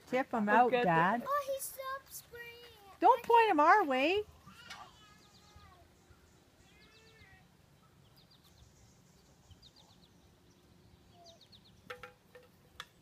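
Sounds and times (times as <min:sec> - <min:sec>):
faint high bird chirps: 0:04.5 - 0:11.9.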